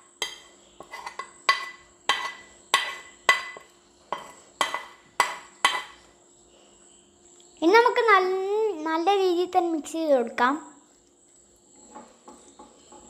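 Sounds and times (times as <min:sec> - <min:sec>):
metal spoon clinking on pan and bowl: 0:00.1 - 0:06.0.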